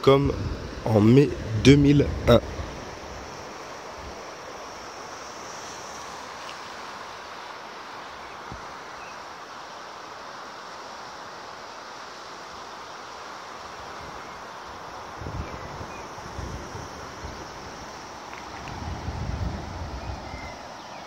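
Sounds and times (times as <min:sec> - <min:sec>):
floodwater rushing: 0:16.6 - 0:20.8.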